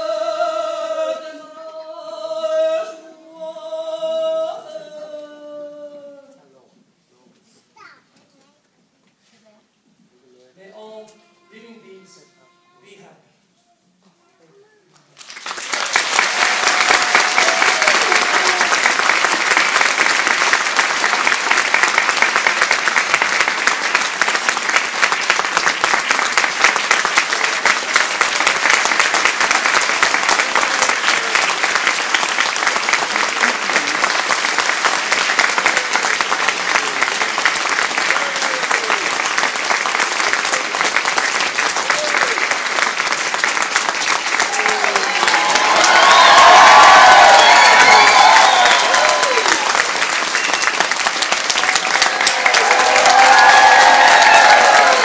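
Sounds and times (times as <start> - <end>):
audience clapping: 15.0 - 55.0.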